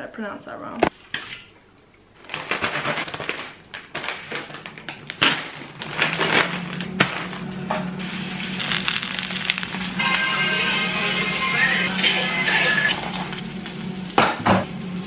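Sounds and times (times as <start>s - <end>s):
knife cutting plastic bag: 2.2s - 7.1s
plastic bag crinkling and rustling: 2.2s - 9.8s.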